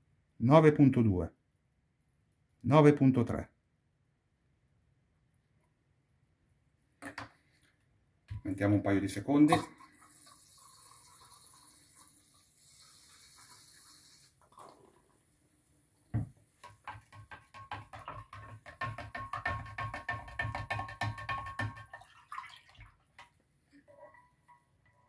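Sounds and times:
faint steady hiss: 0:07.1 - 0:17.0.

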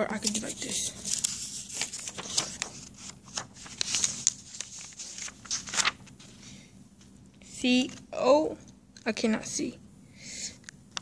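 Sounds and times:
paper rustling and crinkling: 0:00.0 - 0:06.4.

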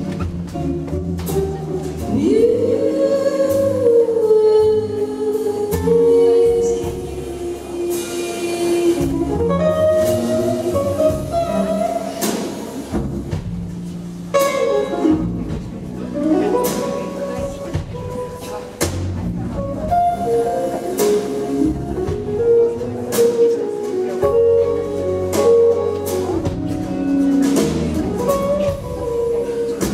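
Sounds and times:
drums: 0:00.0 - 0:29.9
upright double bass: 0:00.0 - 0:29.9
woman singing: 0:02.0 - 0:11.7.

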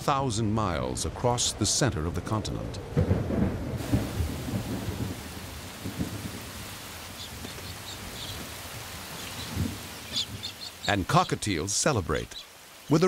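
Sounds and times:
heavy rain pouring: 0:00.0 - 0:13.0
low rumbling thunder: 0:02.7 - 0:10.5.

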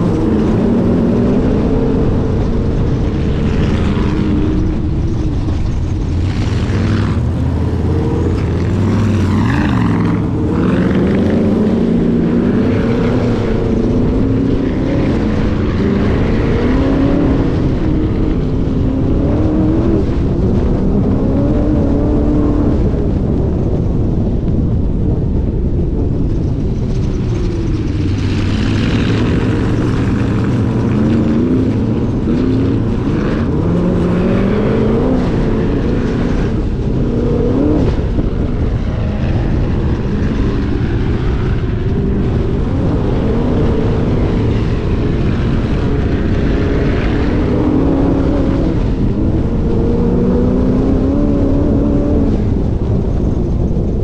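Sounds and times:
rushes of higher noise: 0:00.0 - 0:23.0
dune buggy engine revving: 0:00.0 - 0:54.0.

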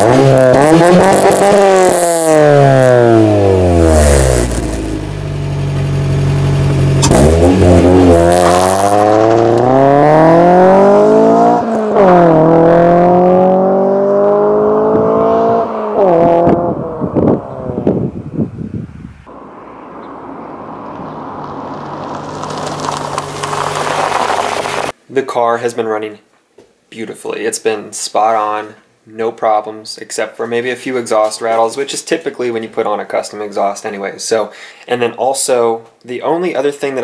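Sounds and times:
car engine revving and accelerating: 0:00.0 - 0:18.0.

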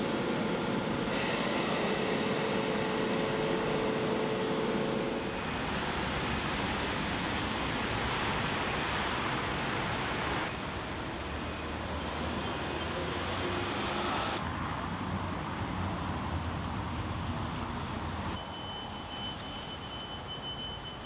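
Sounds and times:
thin high whine: 0:00.0 - 0:07.5
traffic hum: 0:02.2 - 0:18.5.

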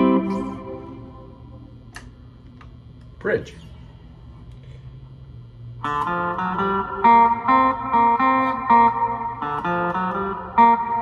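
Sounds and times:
electric guitar riff: 0:00.0 - 0:01.6, 0:05.8 - 0:11.0
faint low amp hum: 0:00.0 - 0:11.0.

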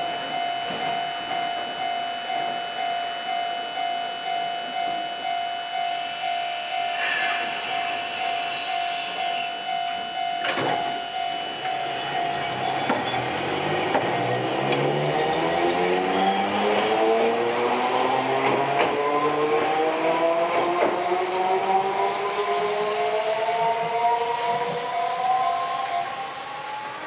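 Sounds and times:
tram electrical hum: 0:00.0 - 0:27.0
hiss of air: 0:07.0 - 0:09.5
traction motors whining: 0:10.4 - 0:17.5.

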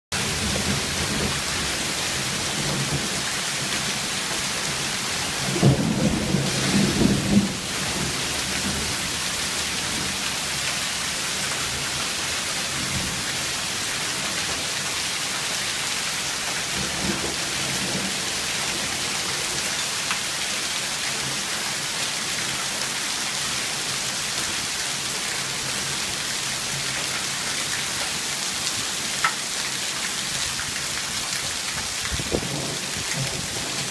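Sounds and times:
hail and heavy rain pelting: 0:00.2 - 0:33.9.

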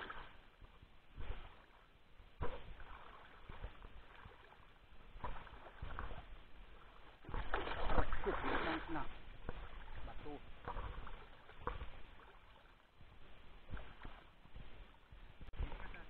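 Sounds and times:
shallow seawater splashing: 0:00.0 - 0:00.5, 0:01.1 - 0:12.9.

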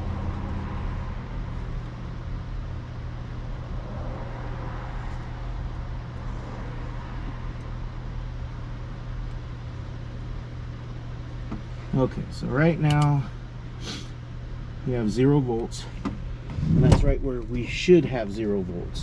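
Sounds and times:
low machine hum: 0:00.0 - 0:19.0
shop background hiss: 0:12.9 - 0:14.2.

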